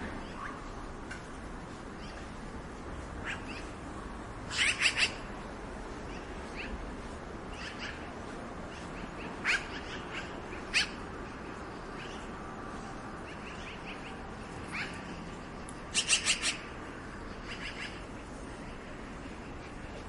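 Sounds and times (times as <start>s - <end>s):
magpie calls: 3.2s - 3.8s, 4.5s - 5.3s, 6.1s - 6.8s, 7.5s - 8.1s, 8.7s - 11.0s, 11.9s - 12.3s, 13.2s - 15.1s, 15.9s - 16.7s, 17.4s - 18.1s.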